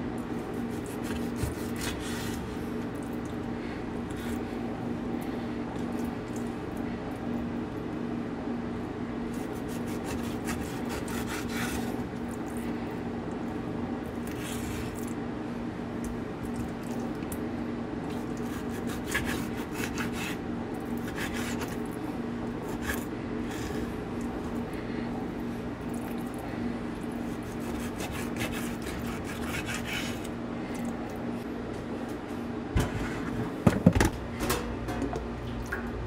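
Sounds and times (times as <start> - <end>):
knife slicing fish: 0.5 - 2.4, 9.3 - 12.0, 18.4 - 20.4, 21.0 - 21.8, 22.6 - 23.8, 27.3 - 30.3
knife scraping wooden board: 27.4 - 30.3.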